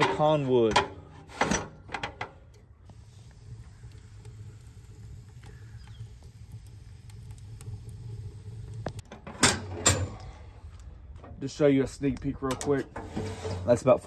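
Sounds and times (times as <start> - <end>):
metal firebox door clanking shut: 0.0 - 2.4, 9.1 - 10.2
fire crackling: 0.0 - 14.0
wood fire rumbling: 0.0 - 14.0.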